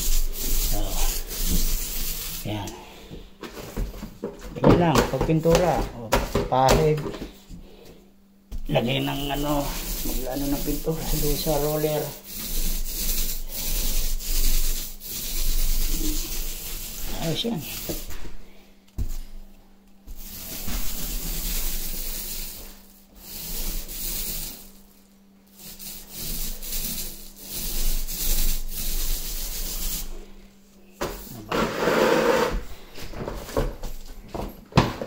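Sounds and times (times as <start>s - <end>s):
paint roller rubbing on wall: 0.0s - 3.0s, 8.6s - 19.3s, 20.1s - 30.4s, 31.0s - 34.0s.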